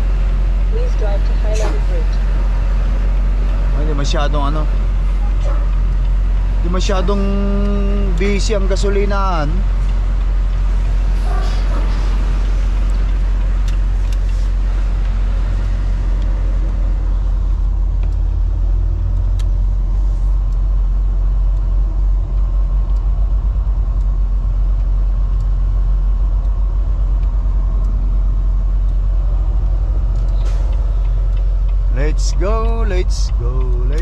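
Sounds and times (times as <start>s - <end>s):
diesel engine drone in cab: 0.0s - 34.0s
faint clicks: 29.6s - 34.0s.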